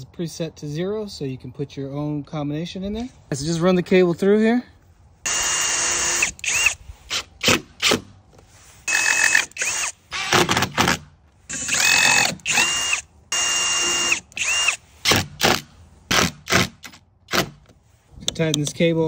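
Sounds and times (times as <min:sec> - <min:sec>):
cordless drill driving screws: 0:05.3 - 0:08.0, 0:08.8 - 0:17.7
drill clutch clicking: 0:11.5 - 0:14.8.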